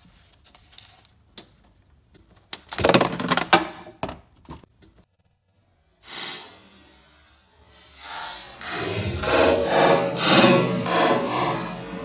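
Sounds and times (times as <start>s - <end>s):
short hiss-like burst: 6.0s - 8.6s.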